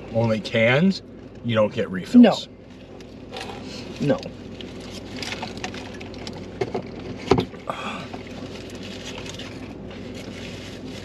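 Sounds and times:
knocks and rustles: 4.8 - 11.0.

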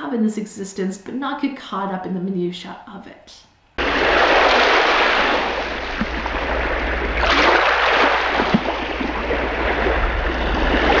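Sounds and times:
rushing water: 3.8 - 11.0.

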